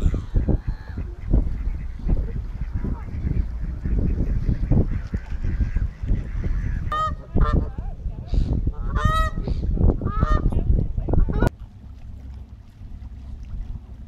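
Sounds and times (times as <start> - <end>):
geese honking: 0.0 - 10.6
steady low rumble: 0.0 - 14.0.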